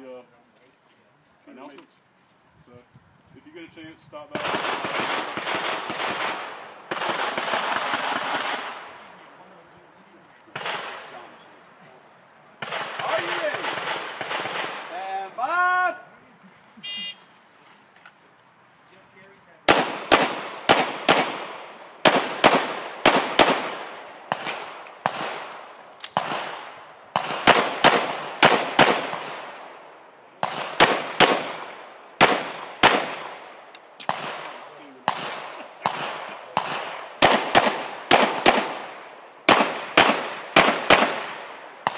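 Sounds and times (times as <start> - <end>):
pistol shots with ringing echo: 10.5 - 11.3, 19.7 - 29.8, 30.4 - 41.9.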